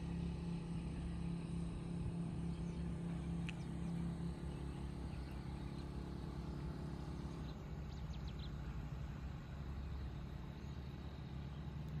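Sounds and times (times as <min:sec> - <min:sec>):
engine rumble: 0:00.0 - 0:12.0
steady hum: 0:00.0 - 0:12.0
faint high-pitched ticks: 0:03.4 - 0:03.7.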